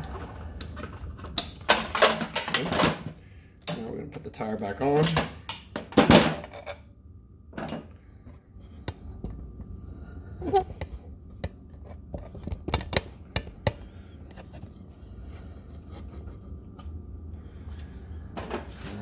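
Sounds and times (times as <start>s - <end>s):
metal parts clicking and knocking: 1.7s - 3.0s.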